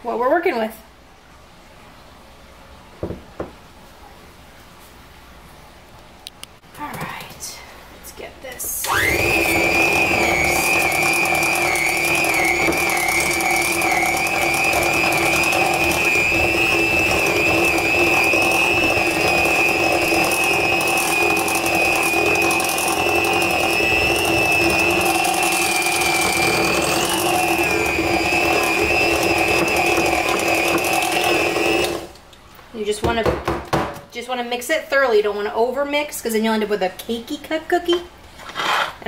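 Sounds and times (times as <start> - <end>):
electric hand mixer whining: 8.8 - 32.2.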